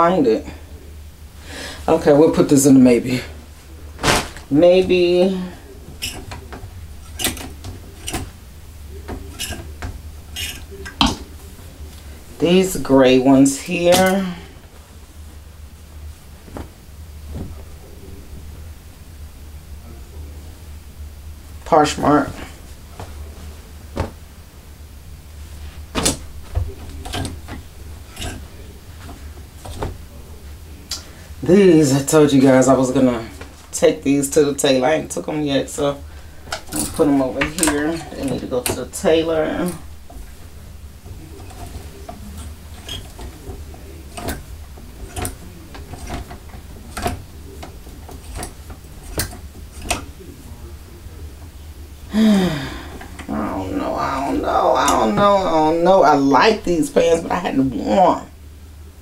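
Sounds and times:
clothes rustling: 0.0s - 58.2s
low steady hum: 0.0s - 59.0s
hangers clicking and knocking: 4.0s - 8.4s, 9.0s - 11.3s, 25.9s - 30.0s, 35.7s - 50.6s
hangers clacking on closet rack: 9.2s - 11.3s, 26.8s - 28.5s, 41.4s - 50.2s.

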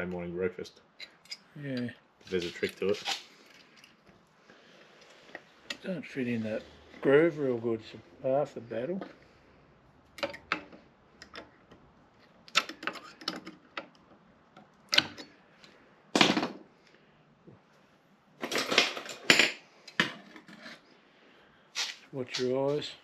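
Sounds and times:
metal tools scraping: 2.3s - 3.3s.

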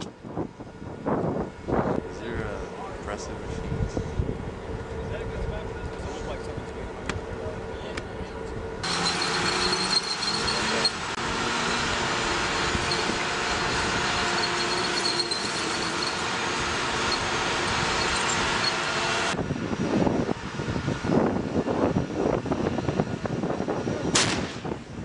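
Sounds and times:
high turbine engine whine: 0.0s - 25.0s
tank tracks clattering and squealing: 8.2s - 19.4s.

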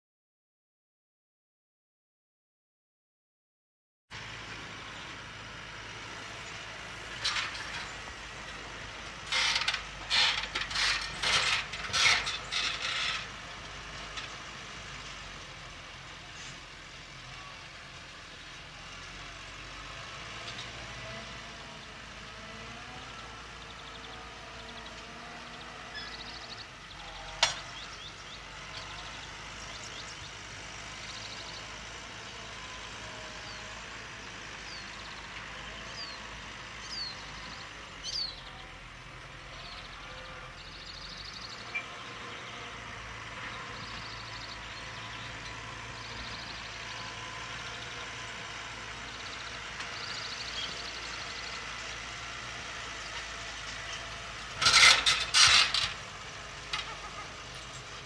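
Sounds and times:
distant tractor engine running: 4.1s - 58.0s
plough rattling and clanking: 7.1s - 8.1s, 9.2s - 13.4s, 53.9s - 56.1s.

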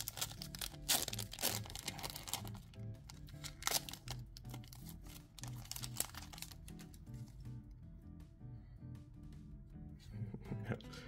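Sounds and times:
foil wrapper tearing and crinkling: 0.0s - 7.0s
background music with beat: 0.0s - 11.0s.

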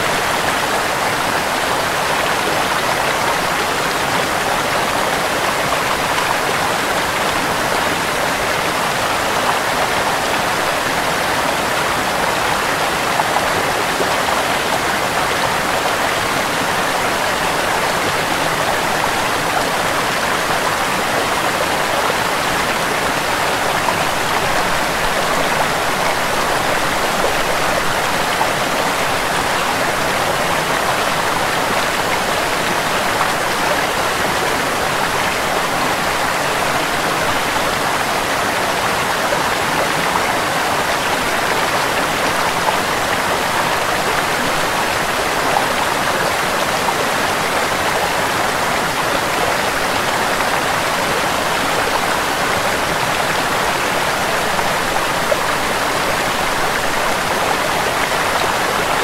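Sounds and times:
small waterfall rushing: 0.0s - 59.0s.

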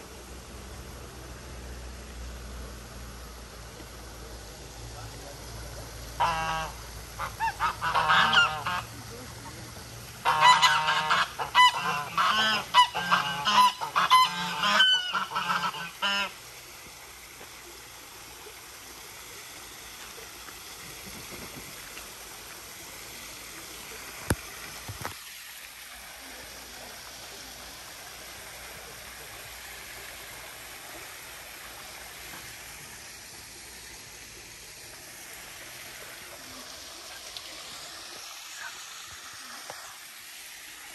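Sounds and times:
small waterfall trickling: 0.0s - 40.9s
geese honking: 6.2s - 8.9s, 10.2s - 16.4s.

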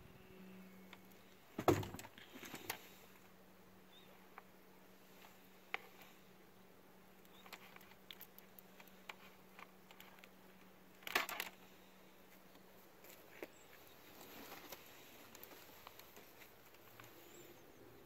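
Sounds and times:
wire stripper clicks and scratches: 7.2s - 11.6s.

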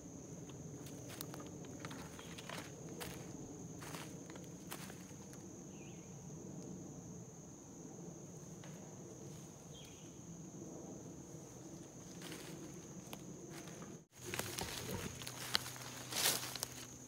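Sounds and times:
high-pitched insect drone: 0.0s - 8.5s
footsteps in dry leaves: 13.5s - 17.0s.

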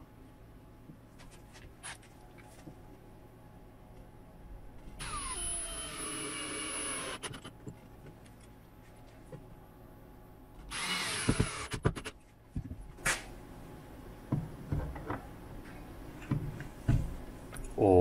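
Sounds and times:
cordless drill driving screws: 5.0s - 7.3s, 10.7s - 12.0s.

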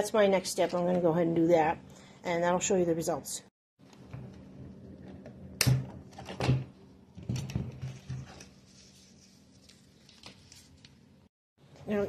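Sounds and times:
plastic and cloth rustling: 7.8s - 11.2s.

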